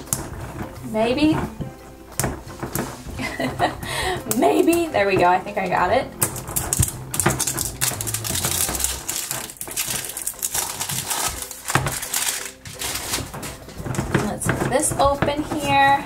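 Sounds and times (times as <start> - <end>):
plastic knocks: 0.0 - 16.0
shrink-wrap crinkling: 0.0 - 16.0.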